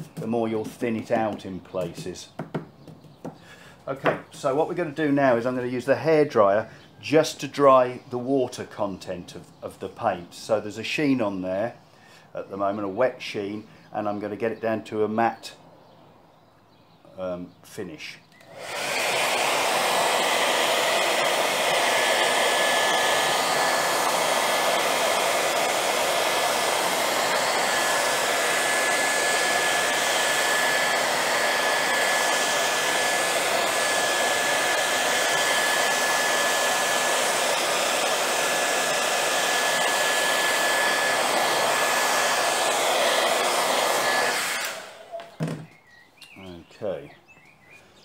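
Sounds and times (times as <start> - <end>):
hair dryer blowing: 0.0 - 2.4, 3.8 - 5.7, 18.4 - 45.6
hair dryer switched off: 18.4 - 45.6.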